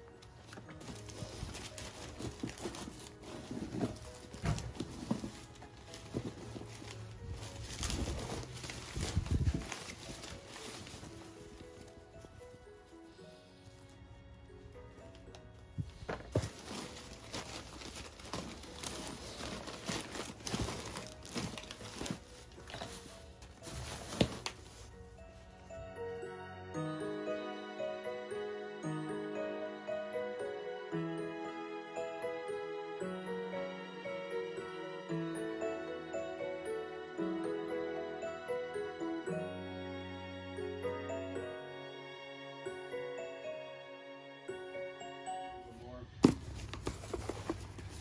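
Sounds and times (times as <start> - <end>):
paper rustling and crackling: 0.2 - 12.2, 15.8 - 25.1, 46.2 - 48.0.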